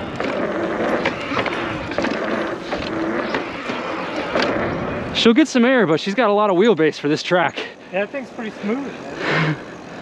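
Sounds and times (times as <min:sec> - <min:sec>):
tires rolling on dirt: 0:00.0 - 0:10.0
faint motor whine: 0:07.7 - 0:10.0.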